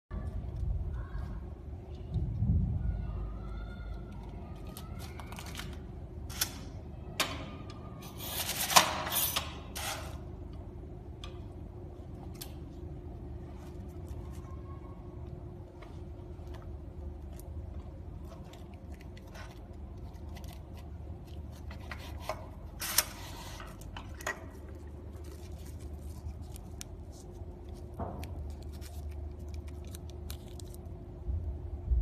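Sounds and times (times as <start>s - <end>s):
steady low hum: 0.1s - 32.0s
wrapper rustling: 24.7s - 31.0s.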